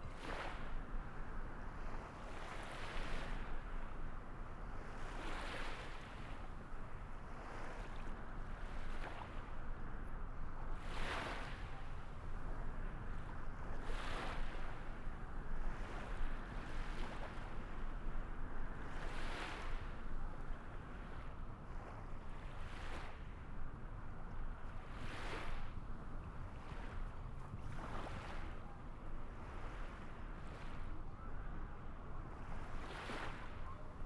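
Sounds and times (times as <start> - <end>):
waves washing in: 13.8 - 15.0, 18.8 - 20.1, 24.8 - 25.8, 32.4 - 33.7.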